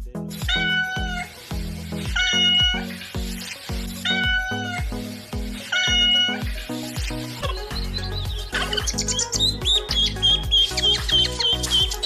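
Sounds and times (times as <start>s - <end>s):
background music with steady beat: 0.0s - 12.0s
cat meowing: 0.4s - 1.3s, 2.1s - 3.0s, 4.0s - 4.9s, 5.7s - 6.5s.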